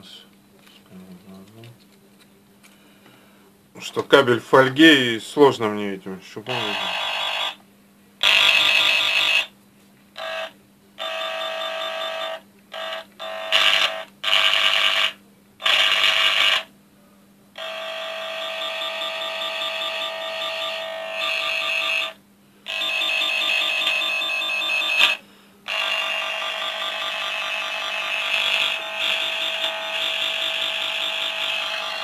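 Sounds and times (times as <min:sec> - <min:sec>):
electronic tracer tone: 0:17.6 - 0:32.0.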